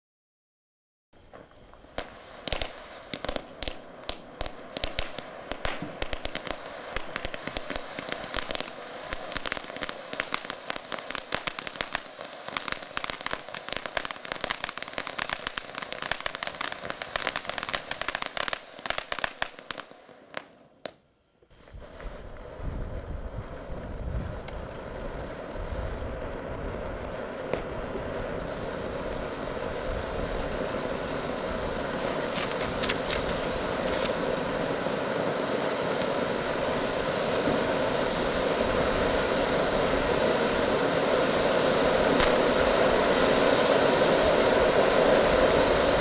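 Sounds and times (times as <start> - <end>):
firework fountain crackling: 1.2 - 46.0
low rushing noise: 21.6 - 46.0.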